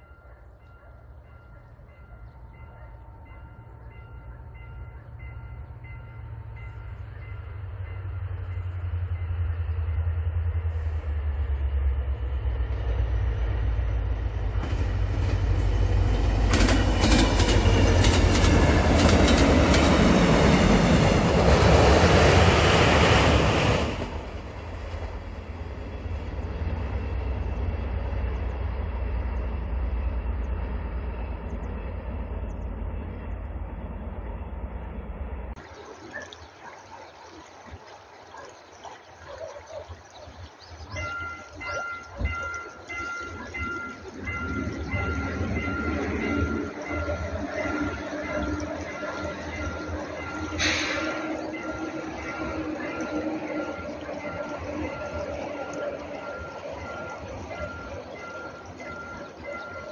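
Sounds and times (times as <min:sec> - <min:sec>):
diesel locomotive engine drone: 0:00.0 - 0:59.9
train wheels clacking over rail joints: 0:14.6 - 0:21.3, 0:47.7 - 0:55.6.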